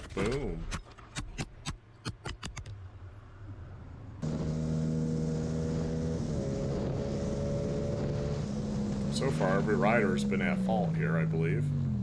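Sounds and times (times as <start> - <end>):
motorcycle engine running: 4.2 - 12.0.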